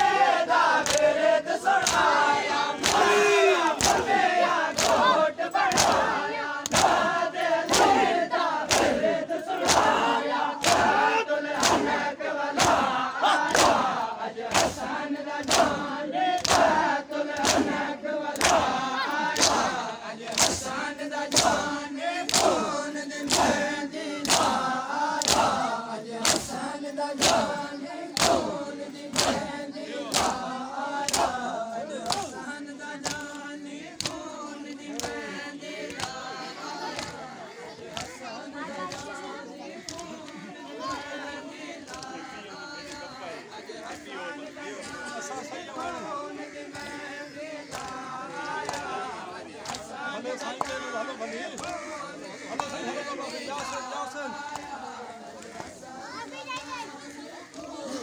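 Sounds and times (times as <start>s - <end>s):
crowd of men chanting: 0.0s - 58.0s
chest beating slaps: 2.8s - 9.0s, 9.6s - 18.8s, 20.3s - 23.6s, 24.2s - 25.6s, 26.2s - 26.6s, 27.2s - 29.5s, 30.1s - 31.4s.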